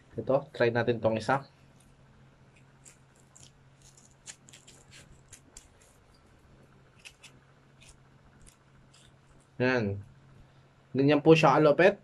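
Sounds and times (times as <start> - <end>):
gloves rustling and scraping: 1.5 - 9.6.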